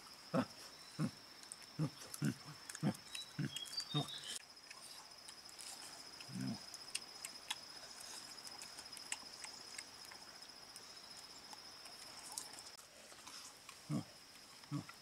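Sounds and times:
insects trilling: 0.0 - 15.0
short low grunt: 13.9 - 14.1.

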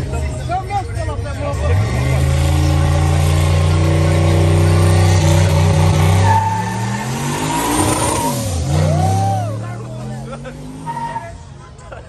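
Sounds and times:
car engine revving high: 1.6 - 11.2.

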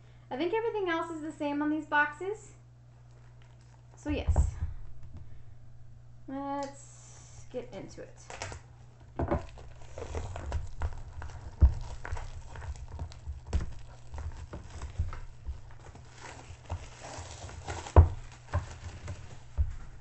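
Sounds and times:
plastic wrap crinkling: 2.9 - 4.3, 8.0 - 20.0.

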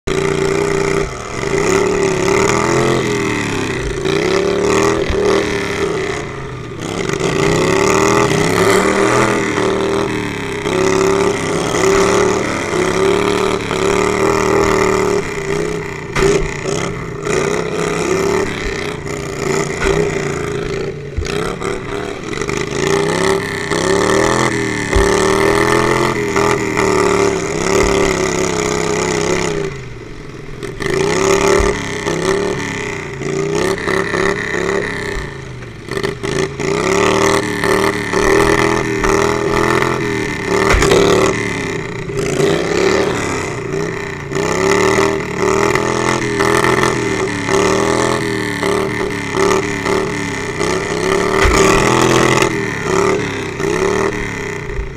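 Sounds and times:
lawnmower engine revving: 0.0 - 54.9
low thumps: 51.3 - 52.5.

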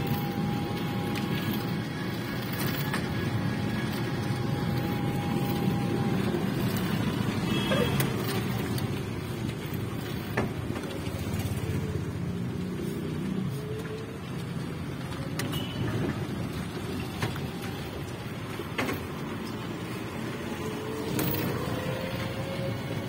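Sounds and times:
tyres rumbling on road: 0.0 - 23.0.

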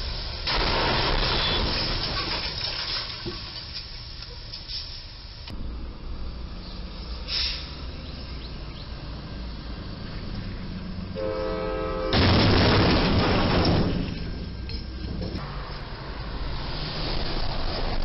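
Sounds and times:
truck crunching and scraping metal: 0.4 - 4.4, 12.2 - 15.4
vehicle horn: 11.2 - 12.3.

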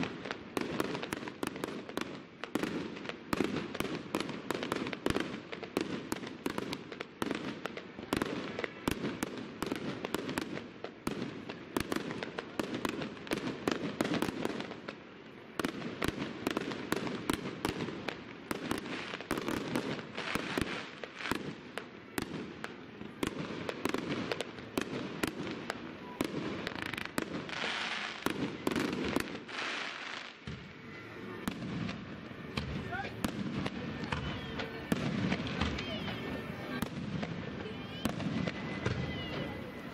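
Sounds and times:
continuous fireworks din: 0.0 - 39.9
fireworks bangs: 0.0 - 39.9.

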